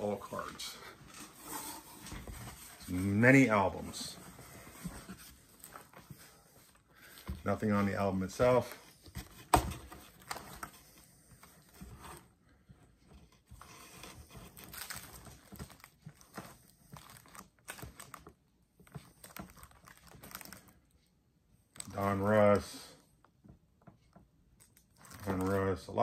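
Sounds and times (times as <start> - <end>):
plastic album pages crinkling: 0.0 - 12.0, 13.6 - 21.0, 24.6 - 26.0.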